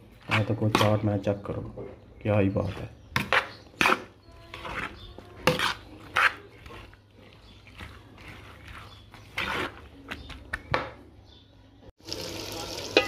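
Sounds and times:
metal spoon scraping steel bowl: 0.1s - 1.3s, 2.6s - 10.3s.

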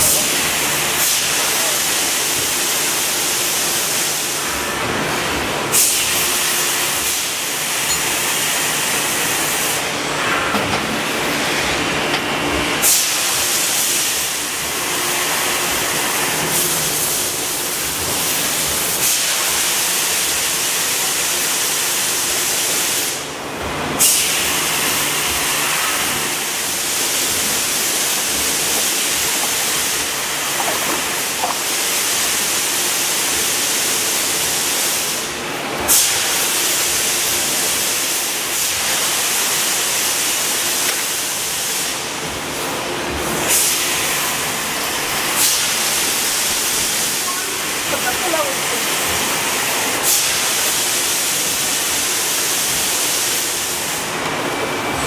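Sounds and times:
compressed air hissing: 25.1s - 32.8s.

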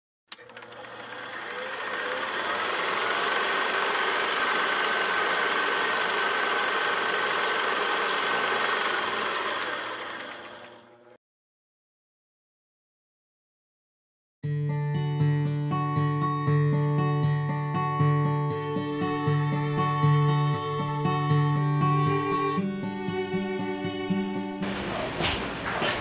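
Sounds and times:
film projector clatter: 0.3s - 11.2s, 24.6s - 26.0s.

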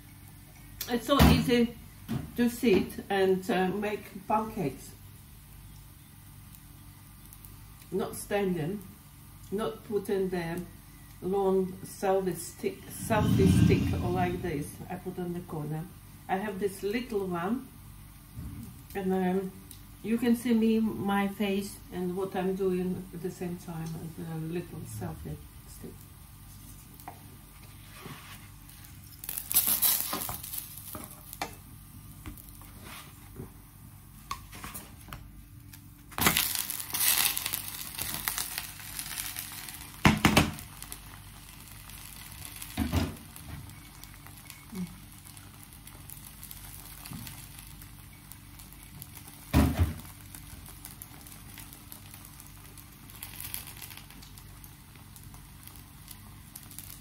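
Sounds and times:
pancake sizzling in oil: 26.1s - 33.3s, 36.1s - 57.0s.

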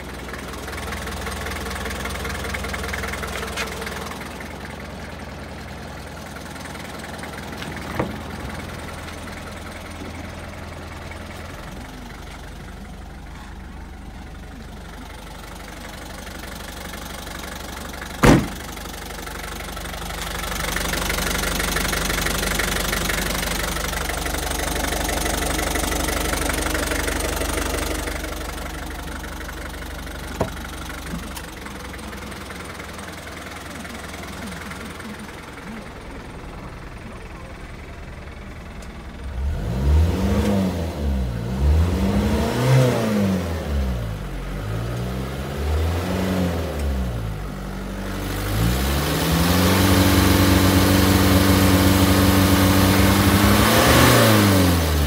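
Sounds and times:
truck engine idling: 0.0s - 41.4s, 46.6s - 55.0s
sharp knock: 18.2s - 18.6s.

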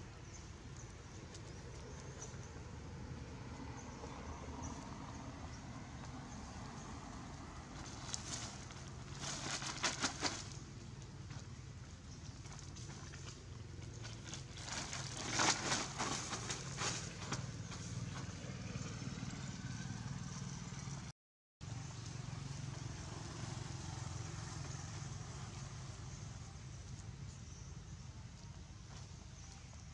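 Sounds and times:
plastic sheeting crinkling: 7.9s - 10.6s, 14.6s - 17.2s.

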